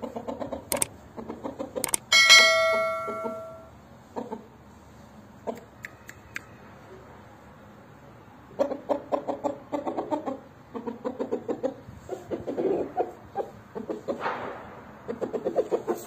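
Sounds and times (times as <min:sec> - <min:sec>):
chicken clucking: 0:00.0 - 0:01.9, 0:04.1 - 0:04.6, 0:05.4 - 0:06.4, 0:08.5 - 0:14.2, 0:15.1 - 0:16.0.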